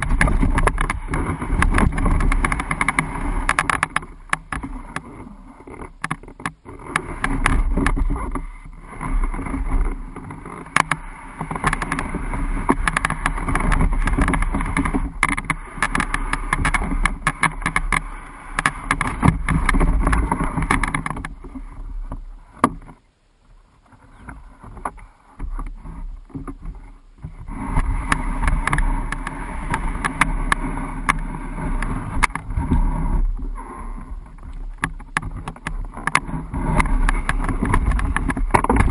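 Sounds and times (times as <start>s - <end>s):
knocks and bumps: 0.0s - 5.1s, 5.8s - 21.6s, 34.2s - 38.9s
canoe hull scraping over ground: 0.0s - 38.9s.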